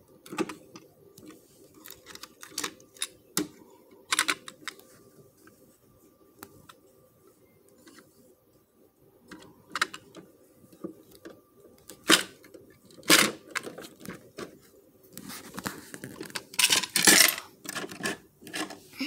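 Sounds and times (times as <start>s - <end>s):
plastic toy clicks and clatter: 1.7s - 3.5s, 16.1s - 18.8s.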